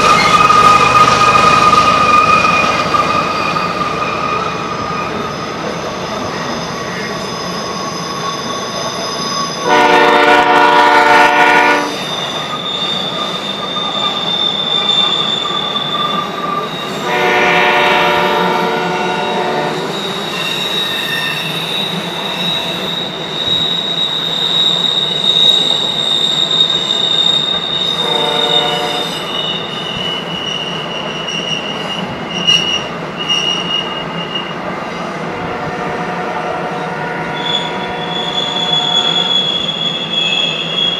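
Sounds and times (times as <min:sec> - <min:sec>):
train wheels squealing: 0:00.0 - 0:35.3, 0:36.7 - 0:40.9
rumble of steel wheels on rail: 0:00.0 - 0:40.9
train horn blasts: 0:09.6 - 0:12.0, 0:17.0 - 0:19.9, 0:27.9 - 0:29.3, 0:35.4 - 0:39.6.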